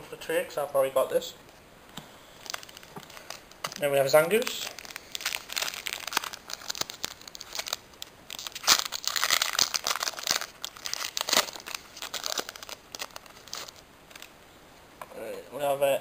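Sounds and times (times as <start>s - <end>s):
foil wrapper crinkling and tearing: 2.3s - 14.4s.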